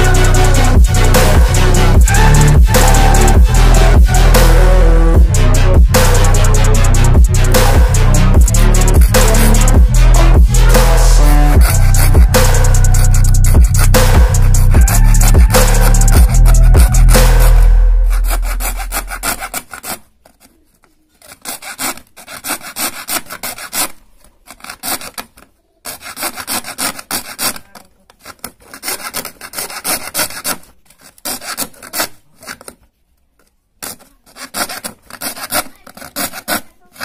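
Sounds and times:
music: 0.0s - 19.2s
hacksaw blade rasping: 0.0s - 32.9s, 33.8s - 37.0s.

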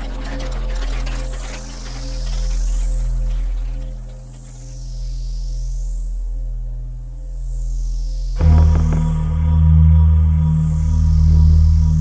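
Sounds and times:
low synthesizer drone: 8.0s - 12.0s.

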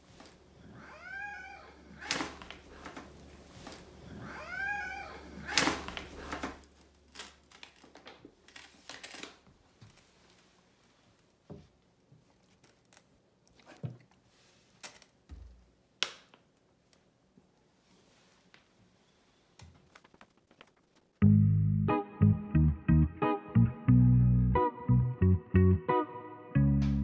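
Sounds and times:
cat meowing: 0.8s - 1.9s, 4.1s - 5.6s
sharp clicks and rustles: 19.6s - 21.2s.

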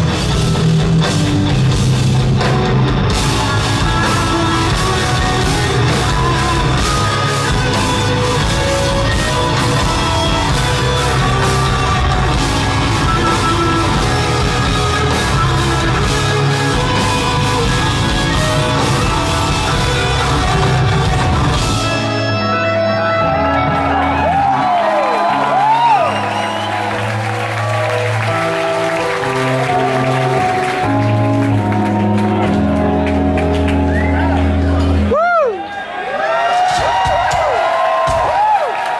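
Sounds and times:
drum kit: 0.0s - 22.4s, 36.5s - 38.9s
electric guitars playing metal: 0.0s - 35.2s
audience whistling: 23.5s - 30.4s, 33.6s - 35.7s.

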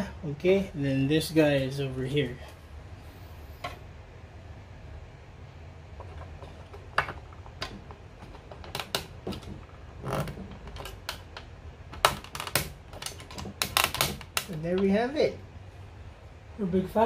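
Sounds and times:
plastic panels clicking and knocking: 6.0s - 15.0s.

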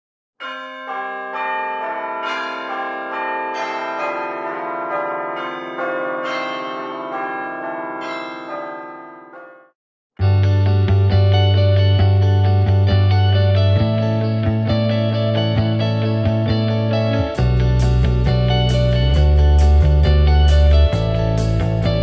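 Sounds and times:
bells ringing: 0.4s - 9.8s, 17.4s - 22.0s
loud music track: 17.3s - 22.0s.

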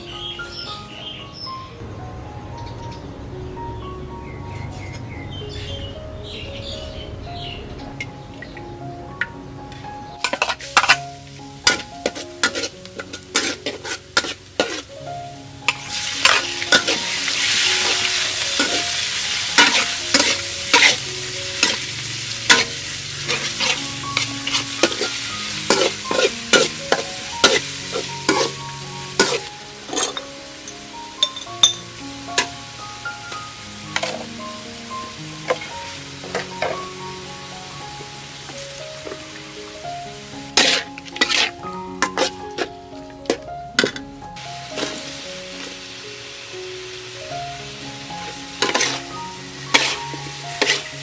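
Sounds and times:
garlic and meat sizzling in oil: 9.7s - 51.0s
metal ladle scraping a wok: 10.2s - 15.0s, 15.7s - 30.3s, 33.9s - 34.4s, 35.4s - 36.9s, 40.5s - 42.7s, 43.3s - 44.1s, 44.7s - 45.0s, 48.2s - 51.0s.

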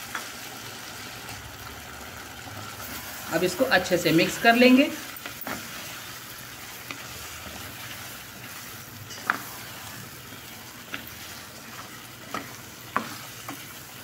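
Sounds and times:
chicken sizzling in oil: 0.0s - 14.0s.

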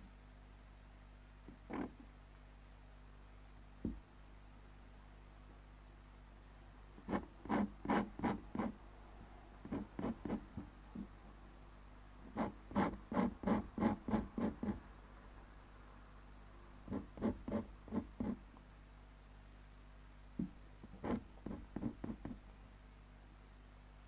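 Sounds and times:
pen nib scratching on paper: 1.7s - 1.9s, 7.0s - 8.8s, 9.6s - 10.7s, 12.3s - 14.8s, 16.9s - 18.4s, 20.9s - 22.4s.

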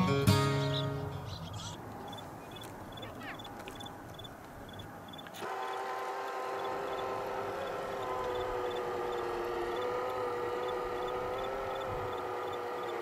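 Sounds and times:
electric motor whine: 5.3s - 13.0s.

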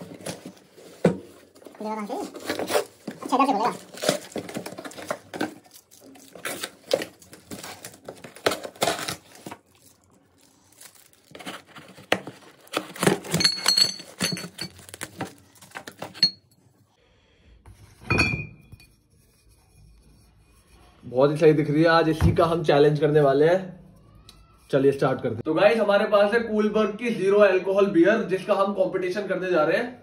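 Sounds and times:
cardboard and tape tearing: 0.0s - 16.2s
foam packing rustling: 0.0s - 16.2s
glass bottles clinking: 13.3s - 14.9s.

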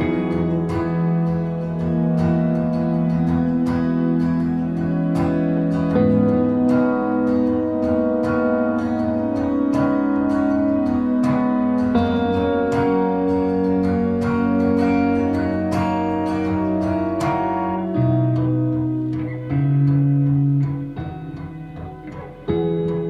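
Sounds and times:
plucked guitar melody: 0.0s - 23.0s.

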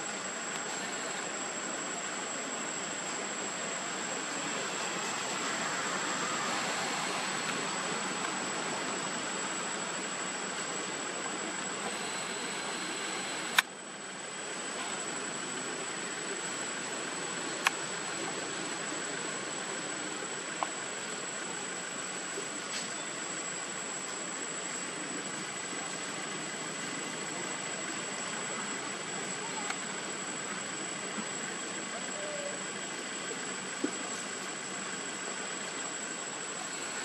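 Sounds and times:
outdoor background hiss: 0.0s - 37.0s
thin high whine: 2.4s - 13.8s
sharp clicks: 11.8s - 13.7s.

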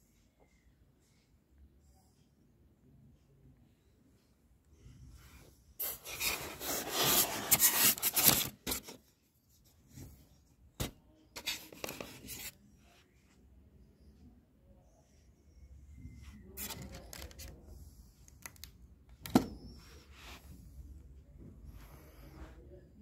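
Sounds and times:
plastic packaging rustling: 5.9s - 9.0s.

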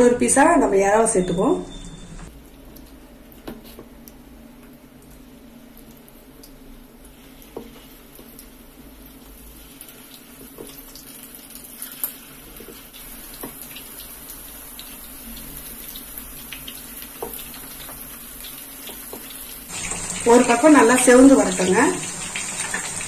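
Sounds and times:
prawns sizzling in hot oil: 6.0s - 23.0s.

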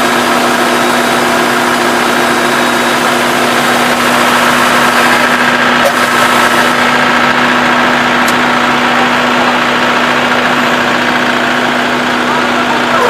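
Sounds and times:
combine harvester droning: 0.0s - 13.0s.

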